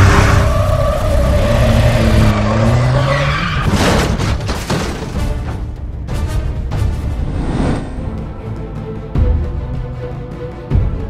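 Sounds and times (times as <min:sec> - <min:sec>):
tyres skidding: 0:00.0 - 0:05.5.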